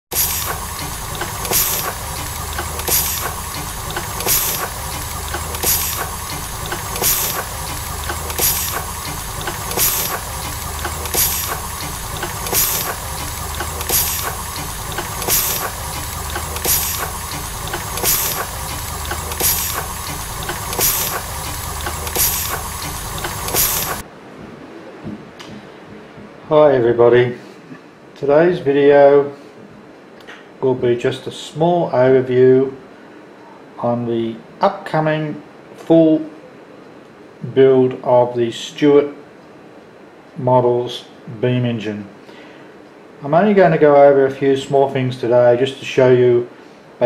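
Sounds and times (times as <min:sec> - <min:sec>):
steam exhaust hissing: 0:00.0 - 0:24.1.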